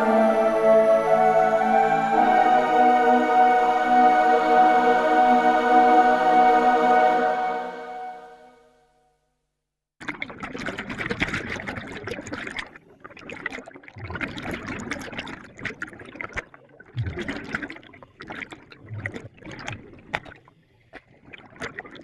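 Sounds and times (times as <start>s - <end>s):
exhaled air bubbling underwater: 10.1s - 20.4s.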